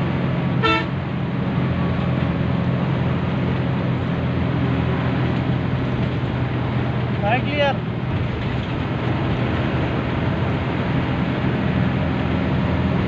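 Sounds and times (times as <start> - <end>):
bus engine running with road noise: 0.0 - 13.0
bus horn blast: 0.6 - 1.0.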